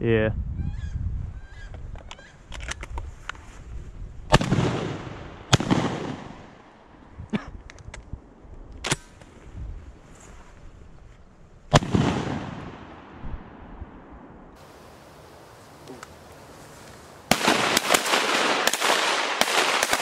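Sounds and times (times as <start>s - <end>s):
shotgun blasts with echo: 4.3s - 6.6s, 11.7s - 13.6s, 17.3s - 20.0s
faint sharp cracks: 15.7s - 20.0s.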